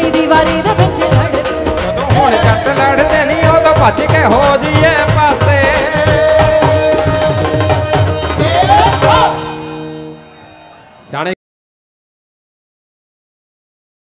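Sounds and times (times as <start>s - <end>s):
tabla beat: 0.0s - 10.1s.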